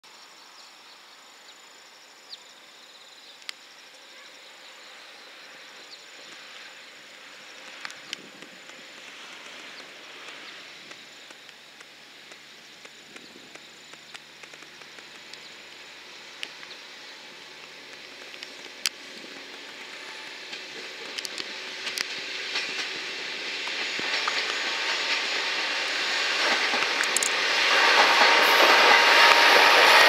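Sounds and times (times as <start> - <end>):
steady outdoor hiss: 0.0 - 30.0
diesel railcar approaching: 1.2 - 30.0
sharp clicks: 26.7 - 27.4.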